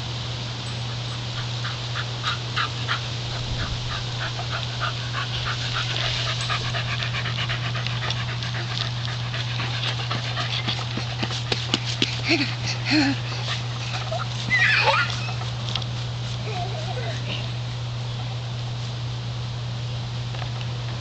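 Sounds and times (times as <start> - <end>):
dog panting: 1.4 - 15.6.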